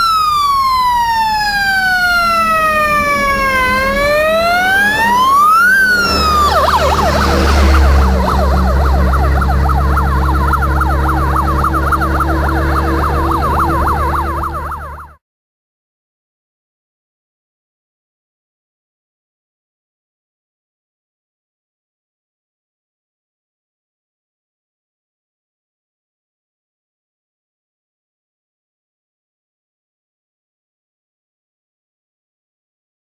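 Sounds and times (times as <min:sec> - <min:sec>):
fire engine siren: 0:00.0 - 0:15.2
low engine drone: 0:00.0 - 0:15.2.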